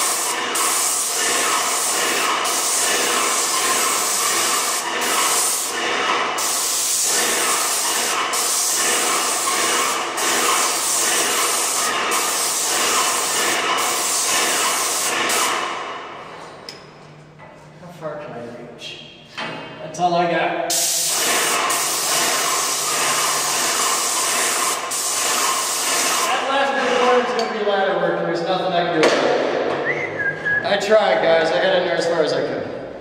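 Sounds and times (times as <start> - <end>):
paint sprayer hissing: 0.0 - 15.8, 20.7 - 26.5.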